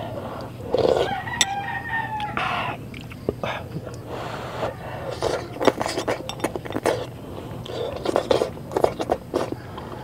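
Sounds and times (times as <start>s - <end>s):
slurping and chewing: 0.3s - 1.6s, 2.2s - 10.0s
metal spoon clinking on glass bowl: 5.6s - 7.0s.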